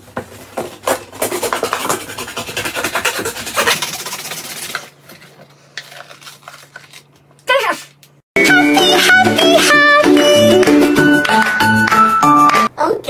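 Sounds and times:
knife sawing through cardboard: 0:00.4 - 0:04.9.

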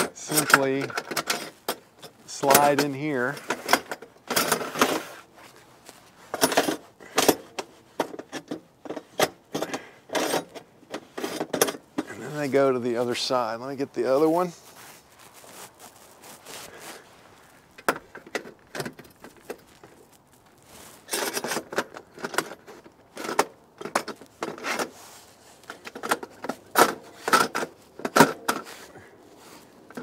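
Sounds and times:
metal brackets clinking on rail: 0:00.0 - 0:05.2, 0:06.3 - 0:13.3.

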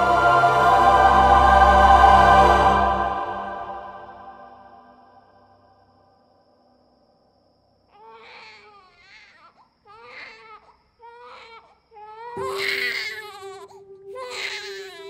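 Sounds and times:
baby crying: 0:07.9 - 0:15.0.

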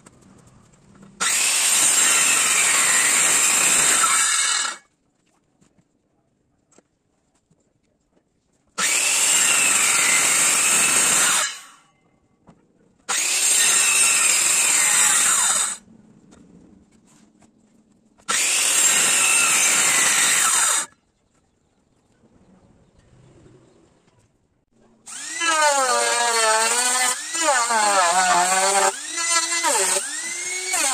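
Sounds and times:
circular saw cutting wood: 0:01.2 - 0:04.8, 0:08.8 - 0:11.9, 0:13.1 - 0:15.8, 0:18.3 - 0:20.9, 0:25.0 - 0:30.9.

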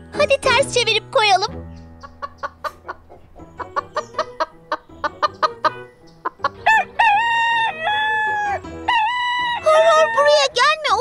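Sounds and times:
rooster clucking: 0:02.0 - 0:09.7
rooster crowing: 0:06.6 - 0:09.8.

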